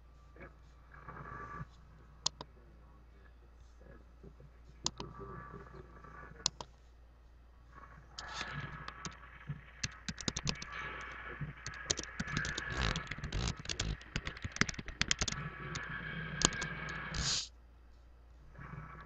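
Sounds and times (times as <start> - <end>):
keyboard typing: 2.2 - 2.5, 8.2 - 9.2, 9.8 - 17.3.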